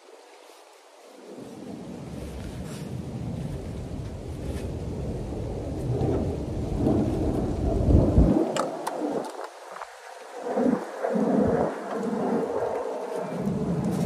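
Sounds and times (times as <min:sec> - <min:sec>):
fabric rustling: 0:01.4 - 0:04.7
heavy low rumble: 0:01.4 - 0:08.6.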